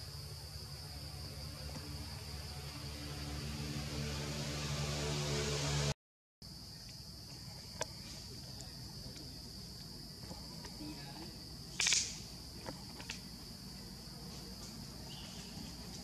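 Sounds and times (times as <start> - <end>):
insects droning: 0.0 - 16.0
rustle: 6.8 - 16.0
sharp snaps: 11.7 - 12.3.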